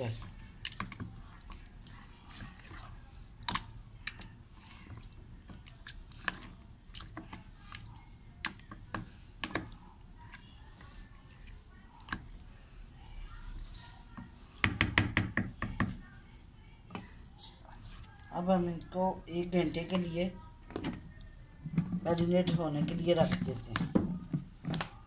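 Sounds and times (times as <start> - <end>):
wet squelching of meat in marinade: 0.0 - 14.1.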